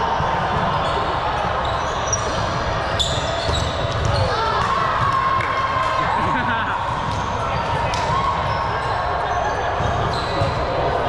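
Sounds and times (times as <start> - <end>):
sneaker squeaks: 0.4 - 5.2, 7.0 - 11.0.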